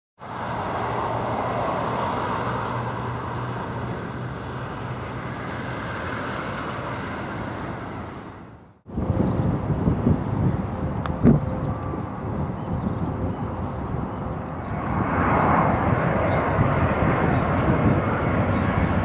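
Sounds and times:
car driving by: 0.2 - 8.8.

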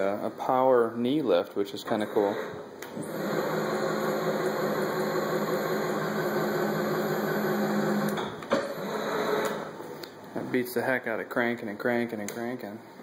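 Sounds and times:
motor running with gear hum: 2.2 - 9.7.

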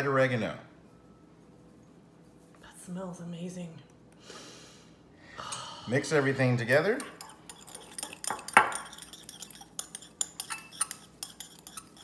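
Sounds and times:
spoon scraping in bowl: 6.8 - 12.0
metal spoon clinking on bowl: 6.9 - 12.0.

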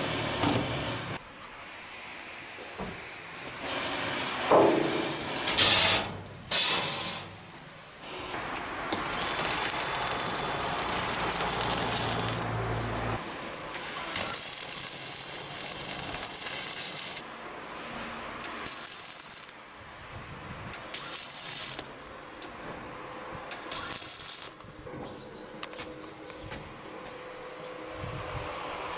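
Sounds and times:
welding arc hissing: 8.0 - 12.6, 13.7 - 17.5, 18.4 - 22.5, 23.5 - 24.9.

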